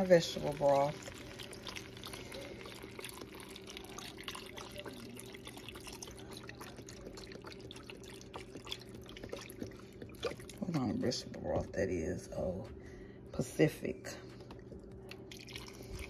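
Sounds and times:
liquid pouring into pot: 0:00.0 - 0:11.2, 0:15.1 - 0:16.0
faint steady hum: 0:00.0 - 0:16.0.

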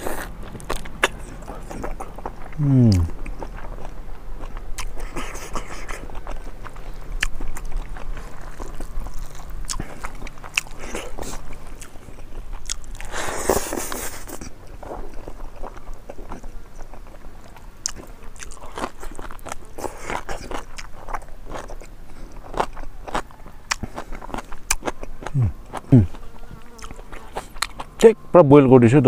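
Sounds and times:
lip smacks: 0:00.0 - 0:03.9, 0:04.5 - 0:07.9
crunchy bites: 0:00.0 - 0:28.1
man chewing wetly: 0:00.0 - 0:28.2.

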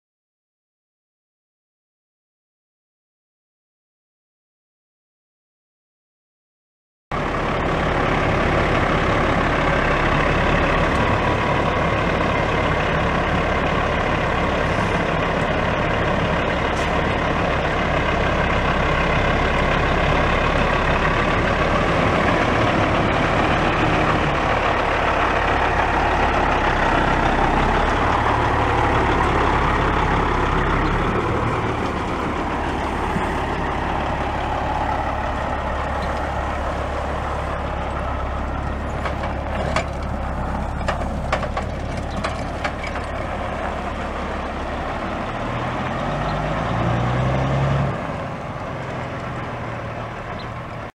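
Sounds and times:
diesel truck engine running: 0:07.1 - 0:50.9
truck pulling away: 0:07.1 - 0:50.9.

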